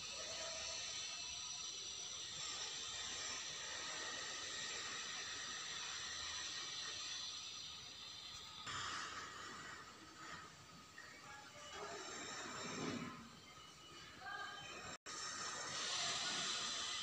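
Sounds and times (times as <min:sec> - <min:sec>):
steady hiss: 0:00.0 - 0:13.2, 0:15.1 - 0:17.0.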